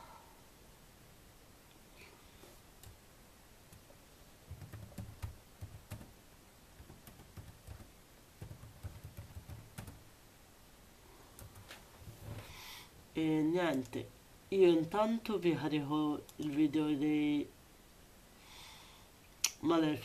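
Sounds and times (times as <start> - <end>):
typing on computer keyboard: 4.5 - 6.1, 6.8 - 10.0.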